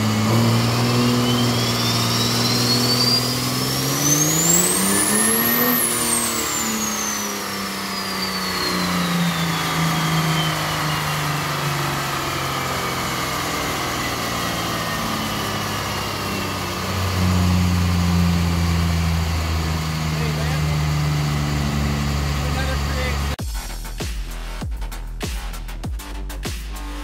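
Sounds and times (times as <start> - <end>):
turbo whistle: 0.0 - 12.8
diesel engine revving: 0.0 - 24.6.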